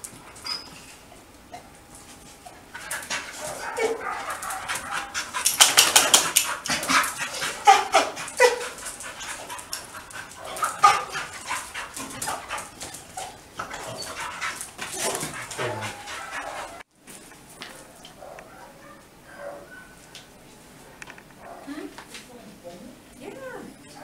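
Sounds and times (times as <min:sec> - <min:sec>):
dog yipping and whining: 0:00.4 - 0:01.7, 0:12.5 - 0:14.3.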